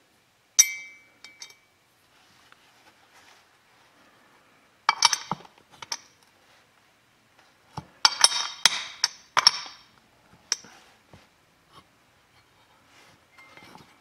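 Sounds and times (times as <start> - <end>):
sharp metallic clinks: 0.6 - 1.7.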